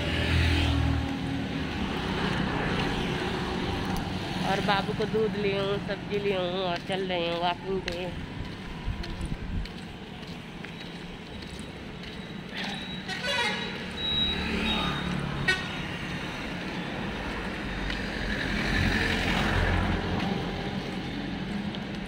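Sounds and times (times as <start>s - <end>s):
street traffic passing: 0.0s - 22.0s
vehicle horn toot: 13.0s - 14.3s, 15.4s - 15.9s.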